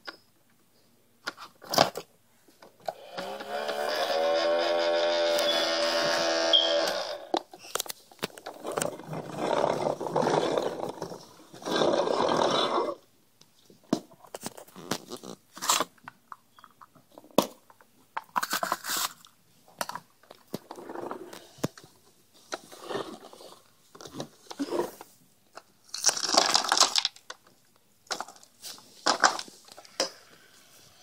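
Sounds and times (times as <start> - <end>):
cardboard bin on wooden floor: 7.3 - 12.4, 28.1 - 29.8
rough growling noise: 8.8 - 13.0.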